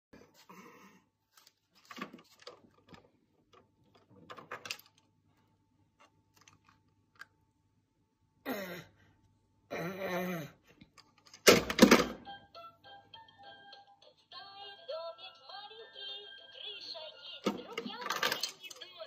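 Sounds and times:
plastic toys clattering: 0:01.8 - 0:05.1, 0:06.3 - 0:07.3, 0:11.0 - 0:12.2, 0:17.4 - 0:19.0
toy handling clicks: 0:17.4 - 0:19.0.

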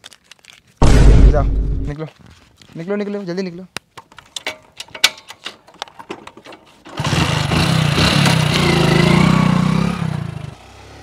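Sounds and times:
motorcycle engine starting and running: 0:06.4 - 0:11.0.

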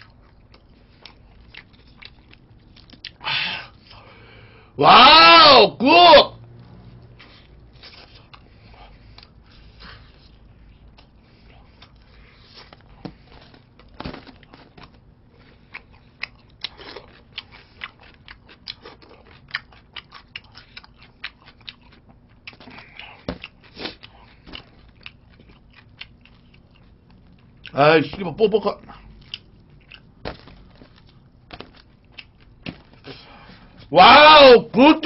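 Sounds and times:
crunchy chicken chewing: 0:07.2 - 0:27.8, 0:28.8 - 0:33.3.

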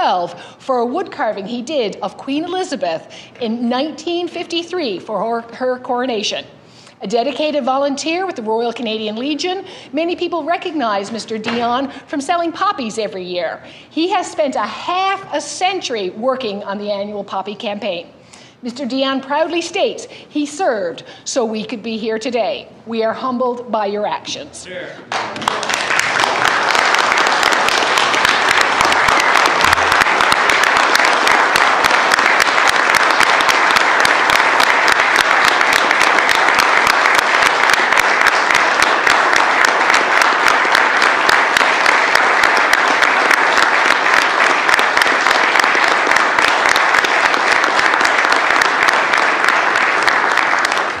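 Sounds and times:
crowd applauding: 0:25.1 - 0:51.0.

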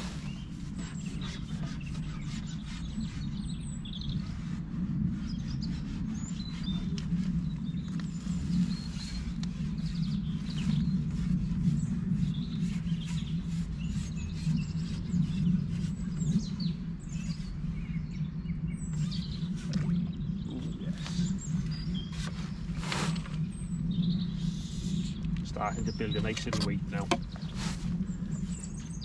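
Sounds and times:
small birds chirping: 0:00.0 - 0:04.5, 0:05.2 - 0:29.0
steady low hum: 0:00.0 - 0:29.0.

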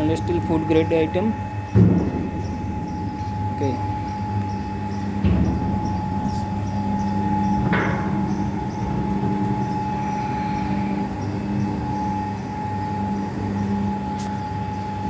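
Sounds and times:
electric motor humming: 0:00.0 - 0:15.0
gearbox whine: 0:00.0 - 0:15.0
clattering strike: 0:01.7 - 0:08.4.

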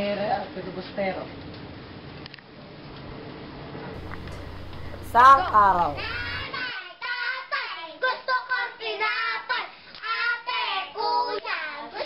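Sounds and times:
children singing and calling out: 0:04.0 - 0:12.0.

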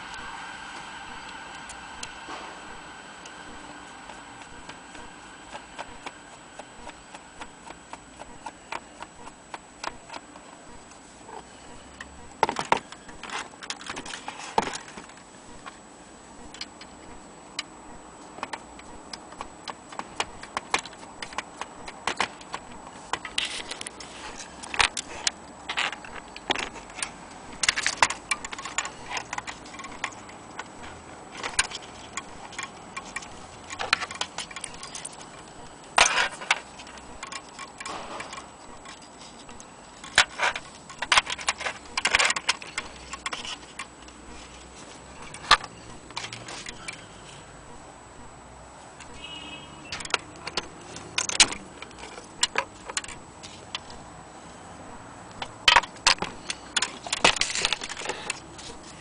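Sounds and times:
metallic clock movement clicks: 0:19.2 - 0:44.2.

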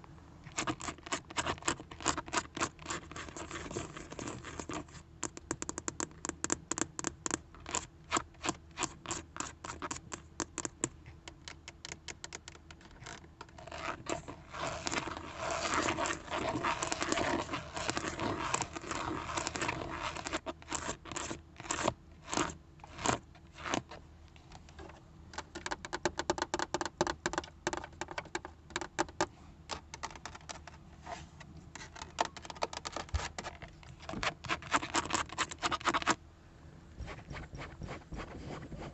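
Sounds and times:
fingernails scratching: 0:00.4 - 0:05.8, 0:11.4 - 0:24.0, 0:28.9 - 0:36.2, 0:37.0 - 0:38.9.

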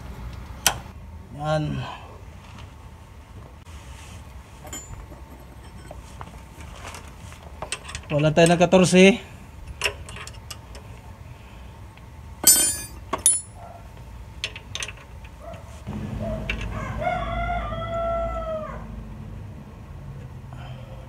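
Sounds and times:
metal wrench clinking: 0:04.6 - 0:06.0, 0:12.4 - 0:13.6
rooster crowing: 0:16.2 - 0:19.0.

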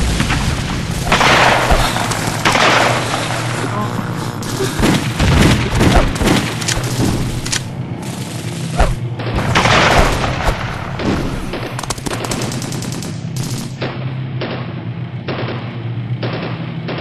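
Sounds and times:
gunfire bursts: 0:00.0 - 0:03.6, 0:04.4 - 0:17.0
machine-gun fire: 0:00.0 - 0:03.6, 0:04.4 - 0:17.0
explosions booming: 0:00.0 - 0:07.8, 0:08.8 - 0:14.6
low steady drone: 0:00.0 - 0:17.0.

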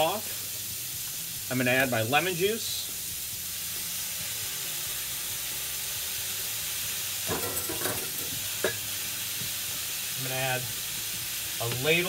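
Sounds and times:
food sizzling in a frying pan: 0:00.0 - 0:12.0.

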